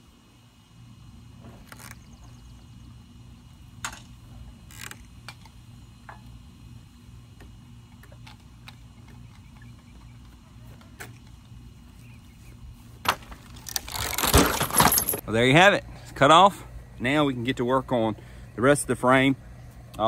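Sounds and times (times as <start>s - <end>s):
low steady hum: 0.0s - 20.0s
metal chains clinking: 13.6s - 15.2s.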